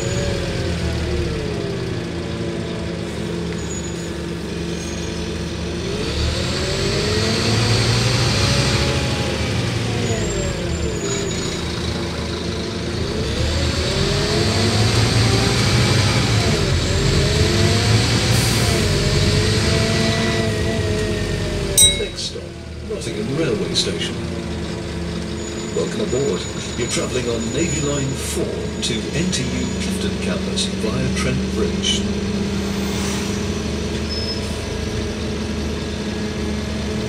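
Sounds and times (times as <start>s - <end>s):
bus diesel engine accelerating: 0.0s - 37.0s.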